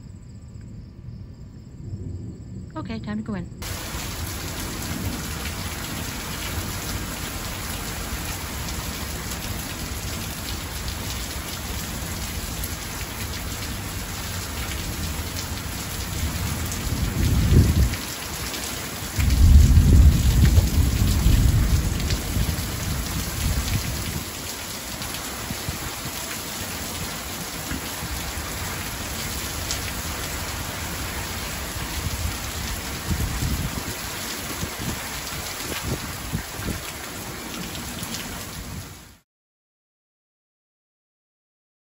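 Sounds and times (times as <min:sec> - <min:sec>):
deep rolling thunder: 0:01.0 - 0:02.7, 0:03.6 - 0:26.0, 0:27.8 - 0:36.6
heavy rain pouring: 0:03.6 - 0:39.2.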